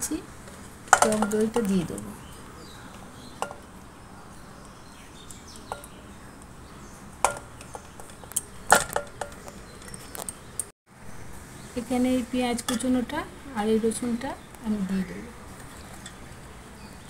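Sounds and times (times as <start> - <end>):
utensils clinking on steel bowl: 0.9 - 2.1.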